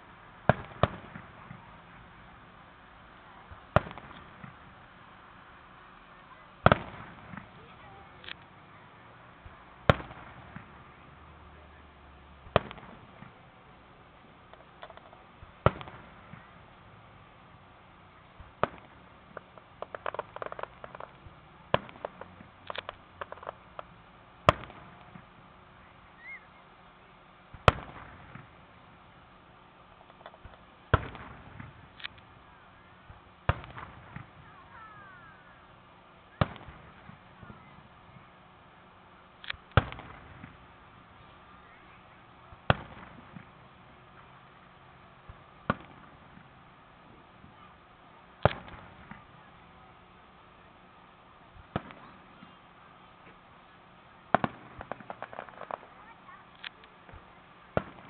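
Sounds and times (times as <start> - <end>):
firework crackling: 0.0 - 58.0
firework shells booming: 0.4 - 2.1, 3.4 - 4.8, 6.6 - 8.5, 9.4 - 10.9, 12.4 - 13.5, 14.4 - 17.1, 18.4 - 25.6, 27.5 - 29.0, 29.9 - 32.3, 33.0 - 35.2, 36.4 - 37.9, 39.5 - 40.8, 42.5 - 44.0, 45.2 - 46.6, 48.4 - 49.4, 51.6 - 52.6, 54.3 - 58.0
small pops and crackles: 14.5 - 16.5, 18.4 - 25.3, 30.0 - 32.3, 36.4 - 37.6, 48.4 - 49.4, 54.3 - 58.0.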